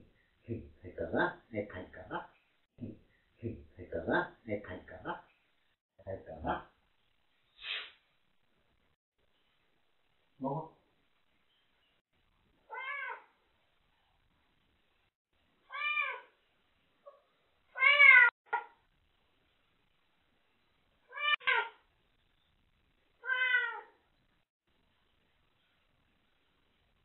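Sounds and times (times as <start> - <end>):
kitten meowing: 23.2 - 23.9.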